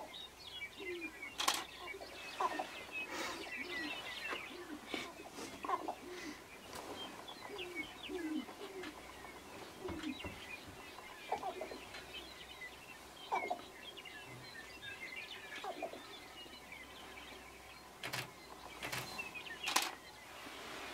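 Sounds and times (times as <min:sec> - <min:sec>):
grouse low call: 0:00.8 - 0:06.5, 0:07.3 - 0:10.3, 0:10.9 - 0:12.1, 0:13.3 - 0:13.8.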